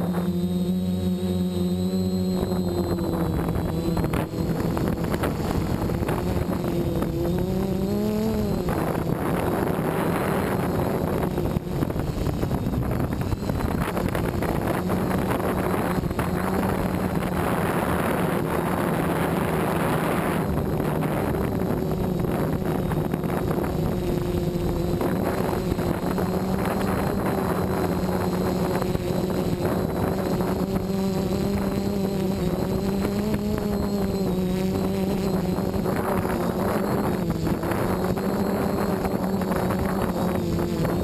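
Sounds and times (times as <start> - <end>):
drone motors humming: 0.0 - 41.0
wind buffeting microphone: 2.3 - 41.0.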